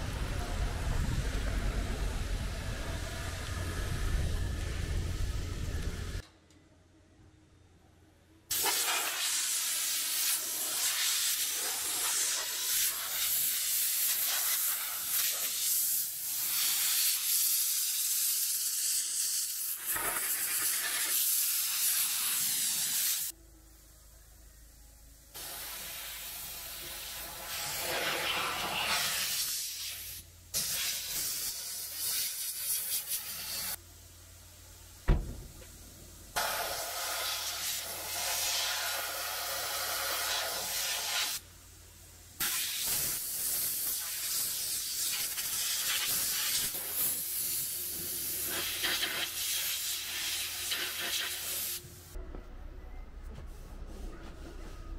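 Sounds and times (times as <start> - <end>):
car wash spray hissing: 8.5 - 23.3, 25.4 - 34.1, 34.8 - 41.4, 42.4 - 52.1
sharp knock: 35.1 - 35.7.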